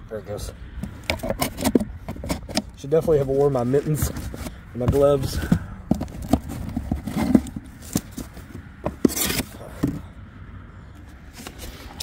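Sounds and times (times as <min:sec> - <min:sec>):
cardboard scraping: 0:00.8 - 0:10.0.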